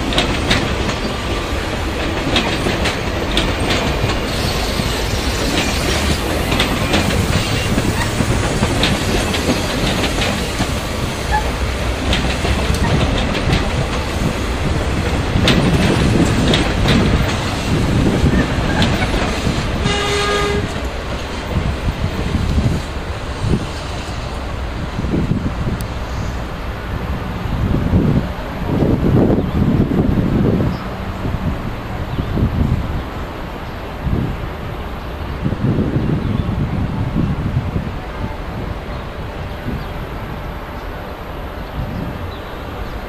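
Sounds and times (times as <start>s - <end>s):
wheels clicking over rail joints: 0.0s - 23.7s
train rumble: 0.0s - 43.0s
horn-like tone: 19.8s - 20.7s.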